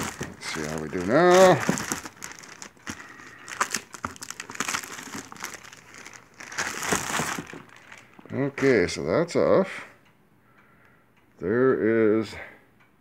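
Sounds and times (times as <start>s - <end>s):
plastic wrap crinkling: 0.0s - 9.0s.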